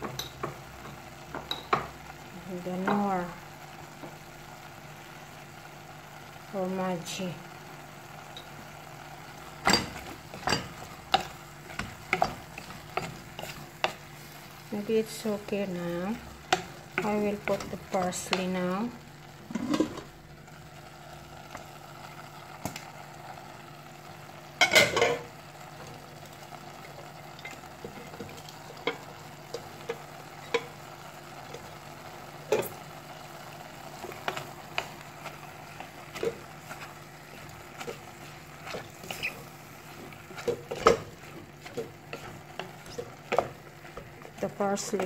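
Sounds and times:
meat sizzling in a pot: 0:00.0 - 0:45.0
wooden spoon scraping a pot: 0:09.8 - 0:15.5, 0:33.9 - 0:45.0.

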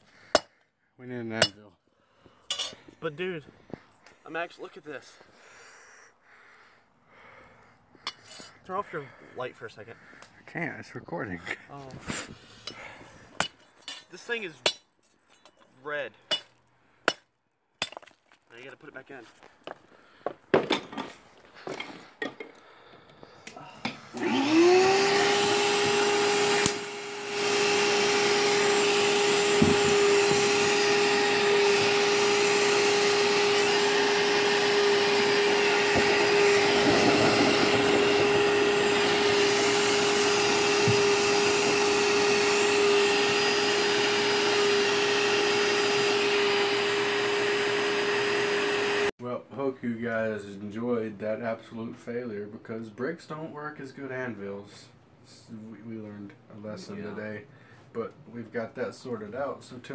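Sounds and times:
electric blower motor whining: 0:24.1 - 0:49.1.

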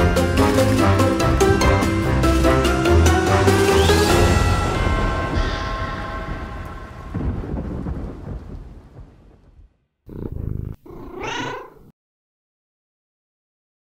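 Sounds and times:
spooky outro music: 0:00.0 - 0:08.4
thunder rumbling: 0:00.9 - 0:10.8
cat meowing: 0:10.1 - 0:11.9
cat purring: 0:10.1 - 0:11.9.

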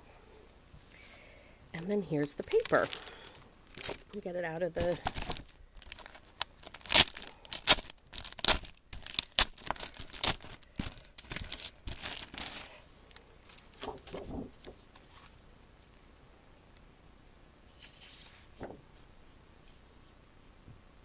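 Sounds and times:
plastic sleeve crackling: 0:02.1 - 0:14.8
paper handling: 0:02.2 - 0:12.7, 0:13.4 - 0:15.4.

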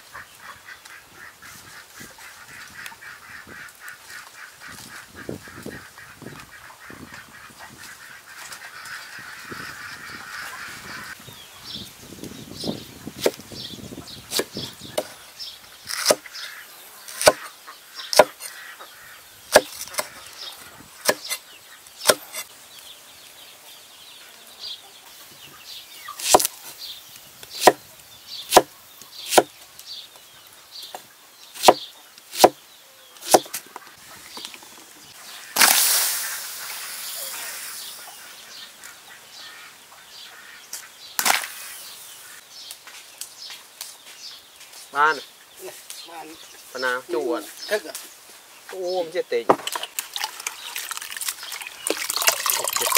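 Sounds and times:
knife chopping on wooden board: 0:16.0 - 0:16.2, 0:17.2 - 0:17.4, 0:18.1 - 0:18.5, 0:19.5 - 0:20.1, 0:26.3 - 0:26.5, 0:27.6 - 0:27.8, 0:31.6 - 0:31.8, 0:32.4 - 0:32.6, 0:33.3 - 0:33.5.

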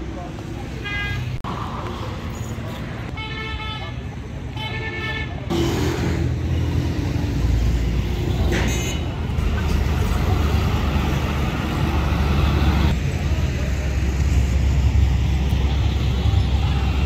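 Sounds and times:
heavy truck engine passing: 0:05.5 - 0:17.0.

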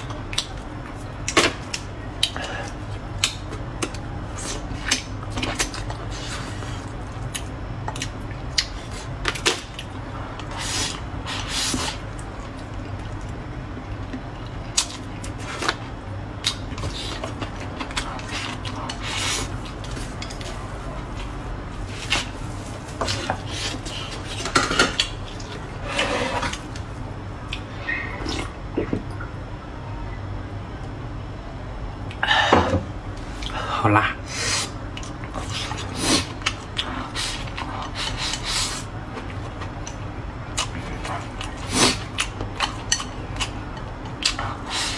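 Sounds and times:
close-up chewing: 0:11.9 - 0:26.8, 0:34.8 - 0:44.9.

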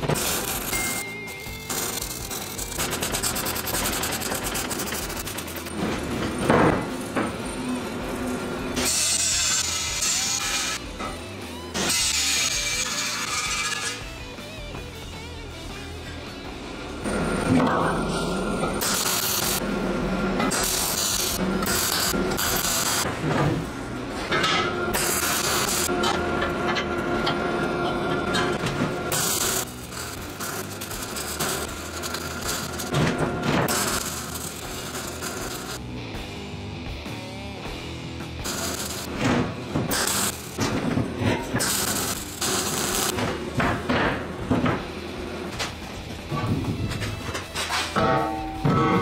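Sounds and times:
arc welding crackling hiss: 0:00.0 - 0:05.7, 0:18.8 - 0:19.6, 0:20.5 - 0:23.1, 0:25.0 - 0:25.9, 0:29.1 - 0:32.9, 0:33.7 - 0:35.9, 0:38.4 - 0:39.2, 0:39.9 - 0:40.6, 0:41.6 - 0:43.2.

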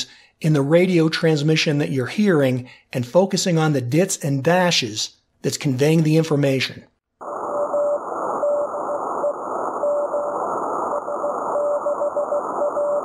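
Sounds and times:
radio static hiss: 0:07.2 - 0:13.0
morse code tone: 0:11.1 - 0:13.0.

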